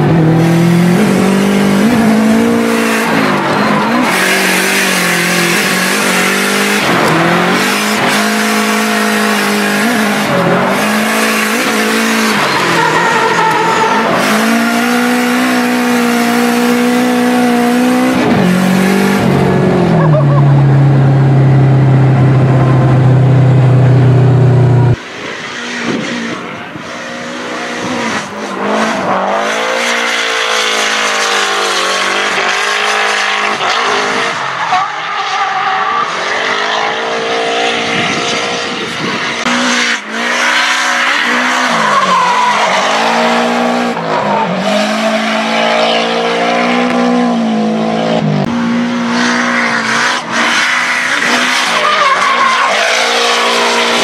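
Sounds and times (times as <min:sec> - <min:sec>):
car engine at high revs: 0:00.0 - 0:54.0.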